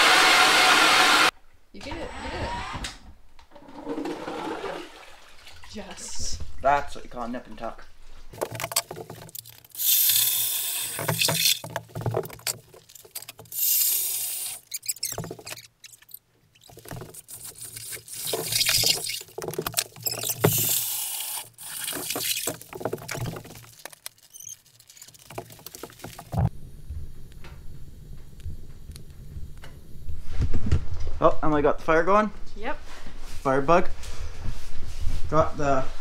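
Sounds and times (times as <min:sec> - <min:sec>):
ice auger grinding: 0:00.0 - 0:01.3, 0:08.4 - 0:26.5
slushy water gushing: 0:20.2 - 0:26.5.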